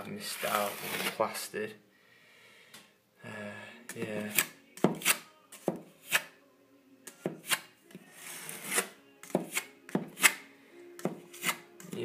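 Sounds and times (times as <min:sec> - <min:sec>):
filling knife scraping plaster: 0:00.3 - 0:01.3, 0:08.2 - 0:09.0.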